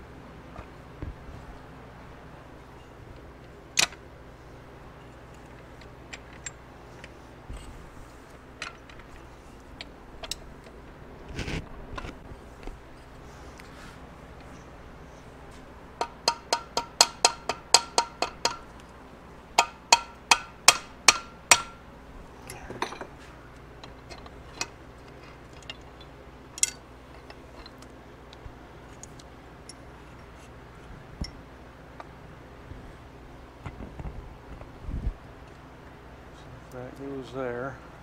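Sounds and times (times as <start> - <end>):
steady low hum: 0.0 - 38.0
metal parts knocking and clicking: 16.0 - 18.8, 23.8 - 27.9.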